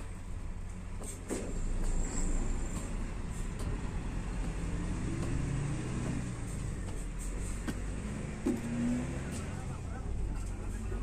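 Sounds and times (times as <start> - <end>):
large diesel engine droning: 0.0 - 11.0.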